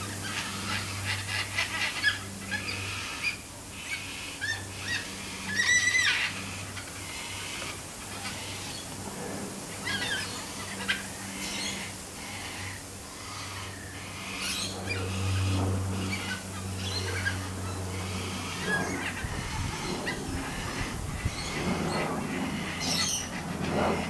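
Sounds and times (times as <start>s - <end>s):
steady low hum: 0.0s - 24.0s
cockatoo calling: 9.8s - 24.0s.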